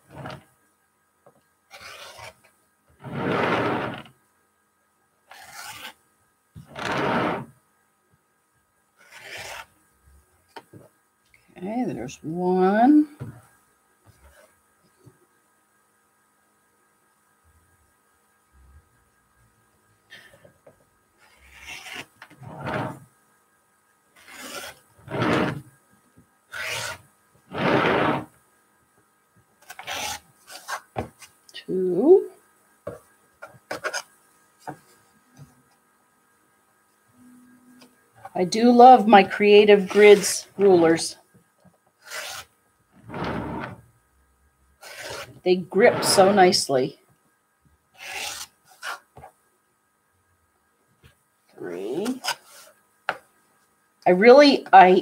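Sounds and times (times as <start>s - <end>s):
rotary cutter rasping through fabric: 1.7s - 2.4s, 3.0s - 4.1s, 6.7s - 7.5s, 24.2s - 25.6s, 26.5s - 28.3s.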